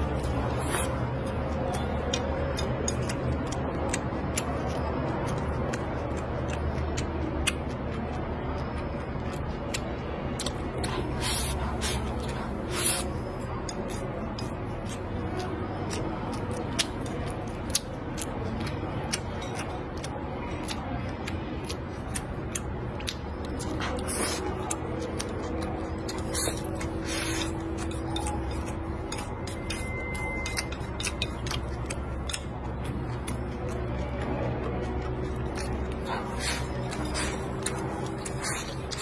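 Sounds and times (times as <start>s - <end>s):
chewing with small clicks: 0.0s - 39.0s
chopsticks against a bowl: 0.0s - 39.0s.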